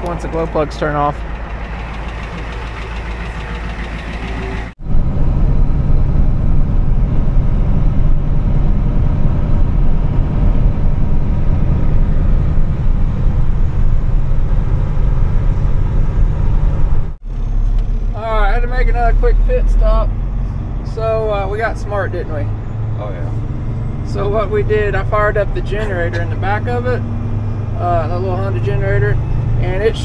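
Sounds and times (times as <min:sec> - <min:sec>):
engine and tyre rumble inside vehicle: 0:00.0 - 0:30.0
engine running: 0:00.0 - 0:30.0.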